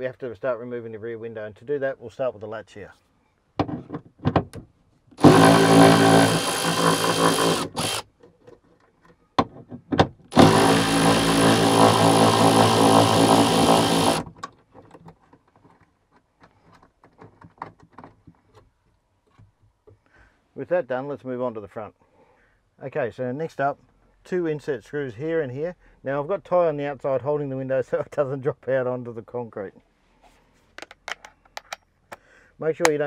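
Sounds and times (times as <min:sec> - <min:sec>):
electric ratchet running: 0:05.2 - 0:08.0, 0:10.3 - 0:14.3
tool clicks: 0:30.8 - 0:32.2.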